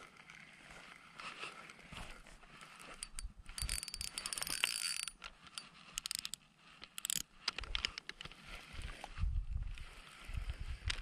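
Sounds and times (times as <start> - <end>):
fishing reel ticking whir: 2.7 - 7.3.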